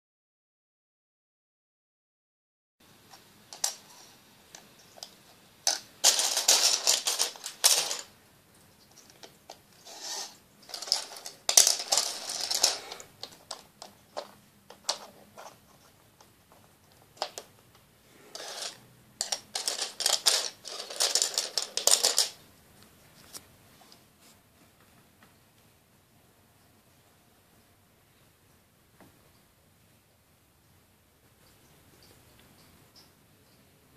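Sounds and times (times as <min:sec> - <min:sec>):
plastic toy pieces clicking: 0:03.5 - 0:03.8, 0:04.5 - 0:08.1, 0:09.0 - 0:15.6, 0:17.1 - 0:17.5, 0:18.3 - 0:22.4.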